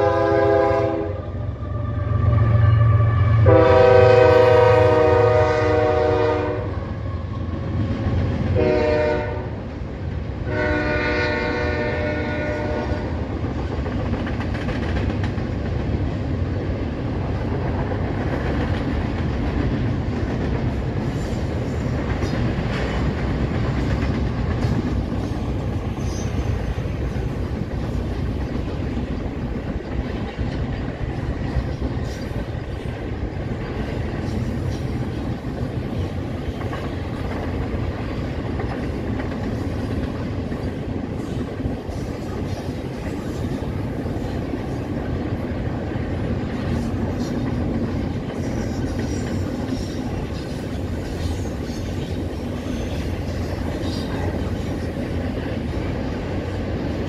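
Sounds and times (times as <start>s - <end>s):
train horn blasts: 0.0s - 7.5s, 8.6s - 9.6s, 10.4s - 13.3s
train rumble: 0.0s - 57.0s
wheels clicking over rail joints: 13.4s - 56.0s.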